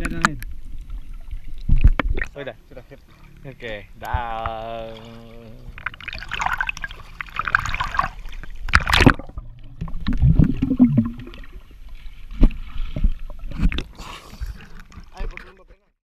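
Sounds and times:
water splashing and sloshing: 0:00.0 - 0:15.9
muffled underwater gurgling: 0:08.9 - 0:11.6.

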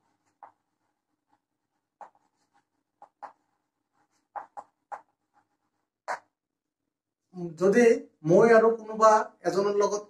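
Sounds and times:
chalk scratching on chalkboard: 0:00.0 - 0:06.3.

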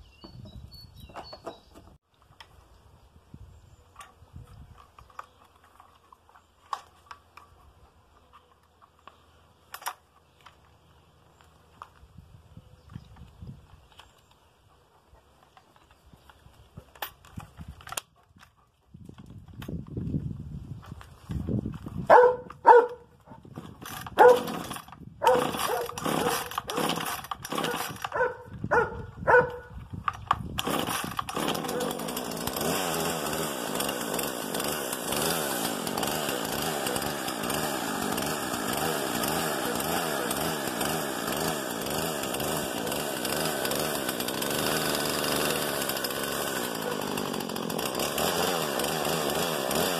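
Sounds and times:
dog barking: 0:22.1 - 0:23.0, 0:24.2 - 0:24.4, 0:25.2 - 0:26.4, 0:28.1 - 0:29.7.

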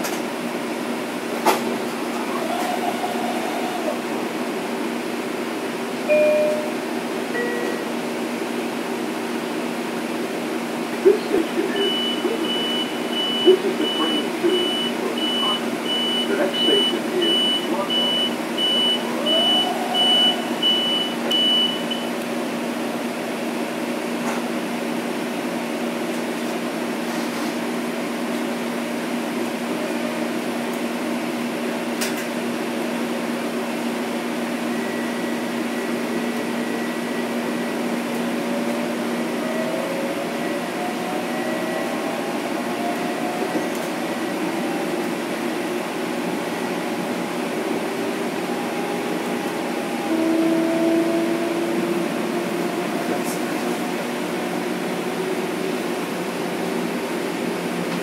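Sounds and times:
train hum: 0:00.0 - 0:58.0
high beeps: 0:06.1 - 0:06.8, 0:11.8 - 0:22.1.

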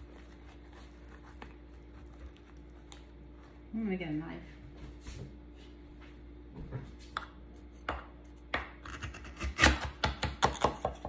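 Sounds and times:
knife crunching through pie crust: 0:00.0 - 0:03.6.

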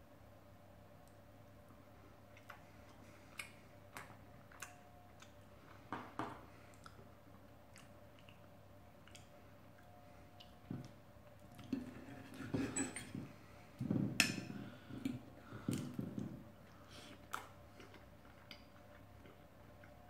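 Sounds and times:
knife and fork scraping a plate: 0:11.8 - 0:13.2.

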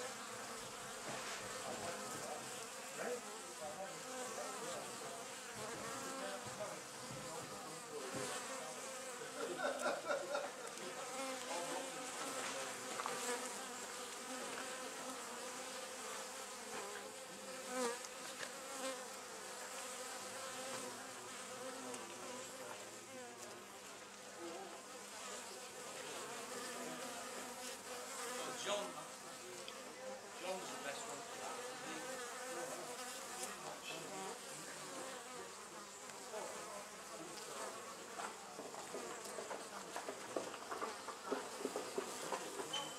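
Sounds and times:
bees buzzing: 0:00.0 - 0:42.9.

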